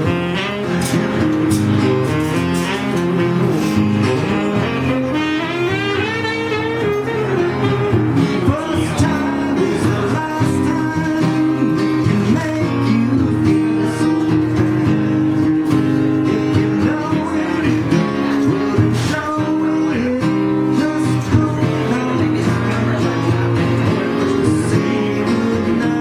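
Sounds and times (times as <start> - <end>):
saxophone playing: 0.0 - 19.4
acoustic guitar strummed: 0.0 - 26.0.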